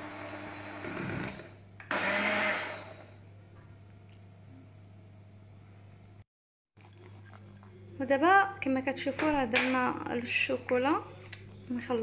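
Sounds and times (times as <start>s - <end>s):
electric hand mixer whirring: 0.0s - 3.1s.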